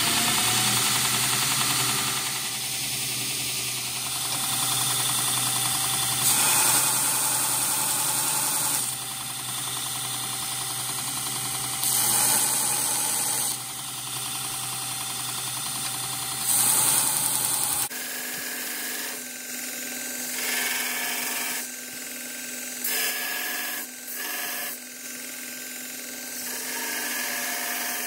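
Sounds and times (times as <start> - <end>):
metal grinding on belt: 0.0 - 14.2
belt grinder motor hum: 0.0 - 28.0.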